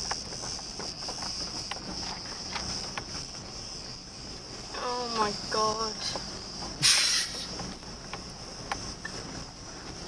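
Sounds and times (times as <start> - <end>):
stones clicking under tyres: 0.0 - 4.0, 6.1 - 10.0
car rumble: 0.0 - 10.0
insects shrilling: 0.0 - 10.0.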